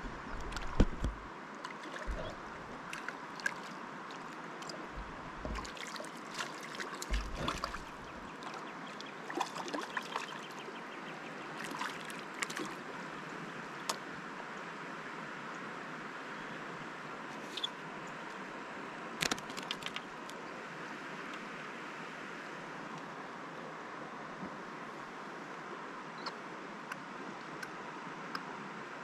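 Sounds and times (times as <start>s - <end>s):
river water running: 0.0s - 29.0s
small water splashes: 0.4s - 14.0s
low thumps: 7.1s - 8.2s.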